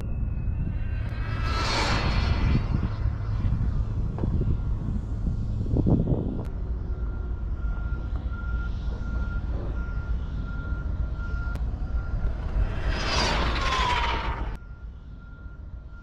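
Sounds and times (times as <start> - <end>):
wind buffeting microphone: 0.0 - 15.8
rc car speeding past: 0.7 - 3.9, 12.1 - 14.6.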